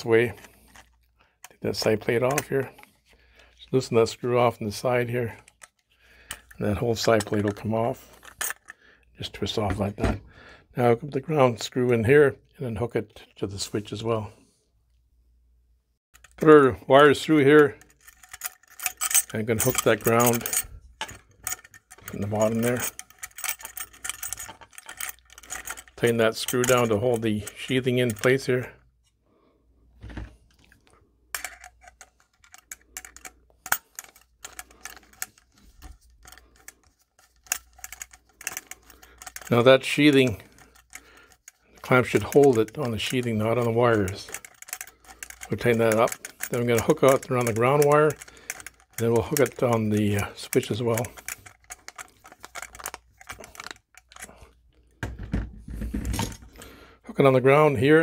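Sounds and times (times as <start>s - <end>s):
screwdriver clicking on metal box: 17.9s - 27.0s, 31.4s - 54.3s.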